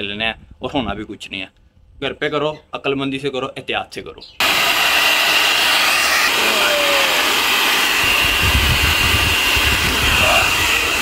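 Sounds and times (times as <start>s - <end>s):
hair dryer blowing air: 4.4s - 11.0s.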